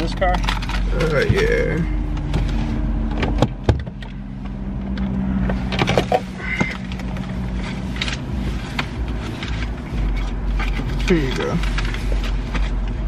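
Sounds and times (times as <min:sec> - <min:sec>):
car engine idling: 0:00.0 - 0:13.0
papers rustling: 0:05.6 - 0:13.0.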